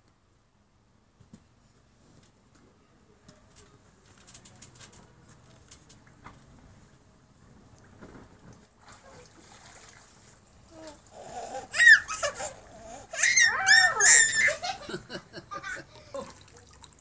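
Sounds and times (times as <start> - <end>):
toddler laughing and squealing: 10.8 - 16.2.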